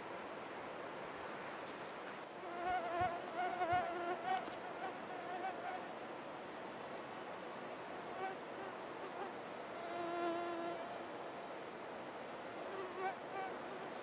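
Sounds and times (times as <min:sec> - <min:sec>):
steady hiss: 0:00.0 - 0:14.0
flying insects buzzing: 0:02.4 - 0:05.9, 0:08.1 - 0:11.0, 0:12.7 - 0:14.0.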